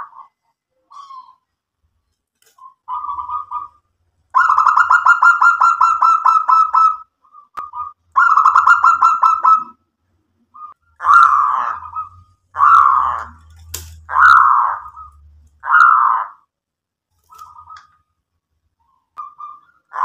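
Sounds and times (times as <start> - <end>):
dove cooing: 2.6 - 3.8, 4.4 - 9.8, 10.6 - 16.2.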